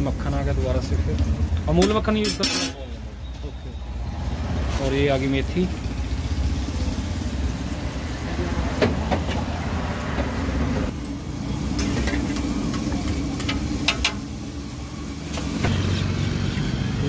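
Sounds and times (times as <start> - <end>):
metal utensils scraping on griddle: 1.8 - 2.9, 11.7 - 12.4.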